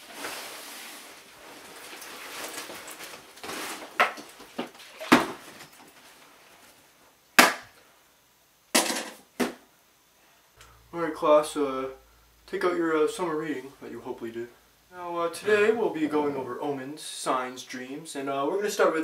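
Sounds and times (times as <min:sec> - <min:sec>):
clothing and backpack rustling: 0:00.0 - 0:06.9.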